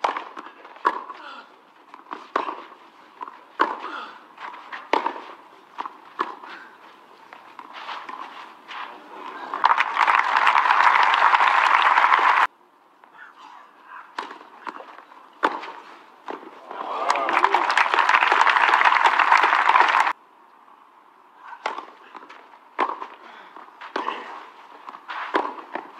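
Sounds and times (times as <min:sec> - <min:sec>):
tennis ball struck by rackets: 0:00.0 - 0:01.2, 0:02.0 - 0:06.5, 0:14.1 - 0:16.5, 0:21.5 - 0:23.2, 0:23.8 - 0:25.9
crowd applause: 0:09.5 - 0:12.5, 0:16.7 - 0:20.2.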